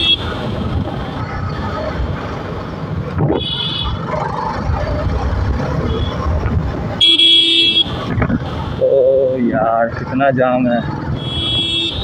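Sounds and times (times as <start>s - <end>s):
motorcycle horn: 3.4s - 4.0s, 11.2s - 12.0s.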